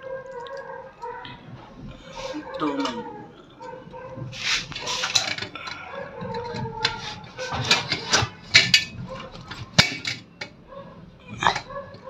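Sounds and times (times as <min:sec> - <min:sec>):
metal parts being handled: 0:02.0 - 0:10.6.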